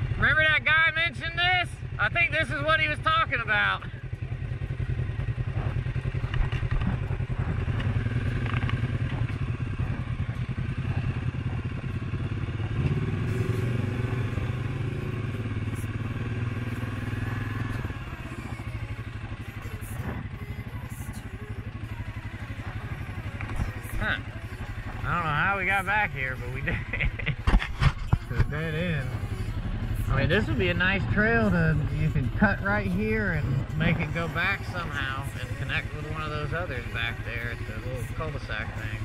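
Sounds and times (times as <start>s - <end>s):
atv engine running: 0.0s - 39.0s.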